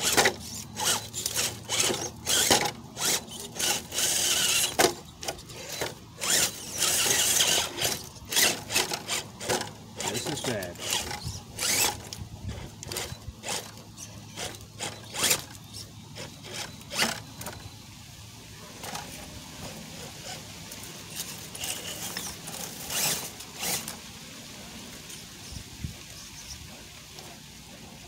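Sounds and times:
drivetrain hum: 0.0s - 24.0s
rc crawler scraping rocks: 0.0s - 28.0s.

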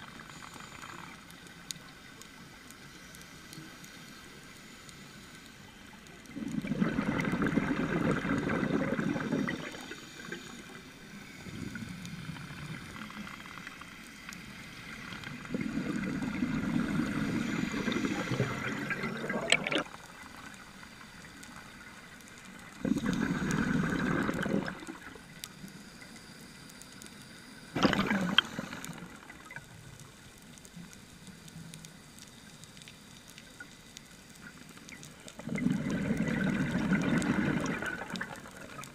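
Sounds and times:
exhaled bubbles gurgling: 6.2s - 13.8s, 14.8s - 20.8s, 22.4s - 25.4s, 27.7s - 30.1s, 34.4s - 38.9s.

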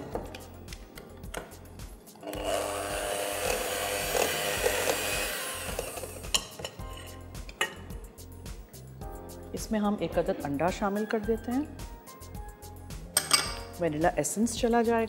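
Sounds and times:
hand mixer motor whining: 2.2s - 6.3s.

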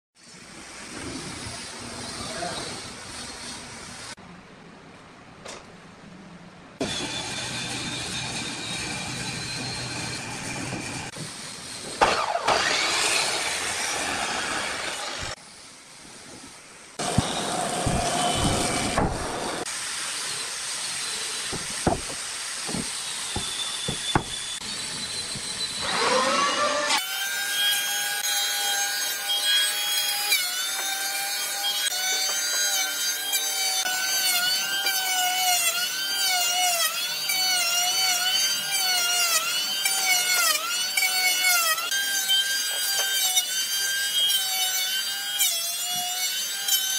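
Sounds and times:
saw cutting through timber: 0.2s - 4.2s, 6.8s - 16.4s, 17.0s - 46.9s
electric hand planer whining: 6.8s - 11.1s, 12.0s - 15.4s, 20.3s - 46.9s.

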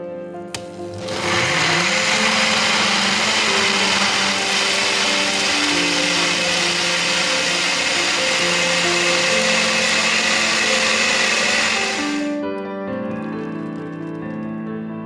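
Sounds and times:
blender running: 0.6s - 12.4s.

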